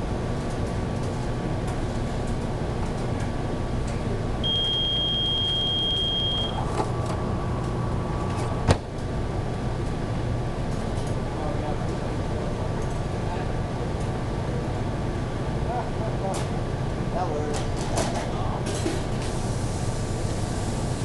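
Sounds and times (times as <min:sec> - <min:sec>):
kitchen exhaust hood hum: 0:00.0 - 0:21.0
long electronic beep: 0:04.4 - 0:06.6.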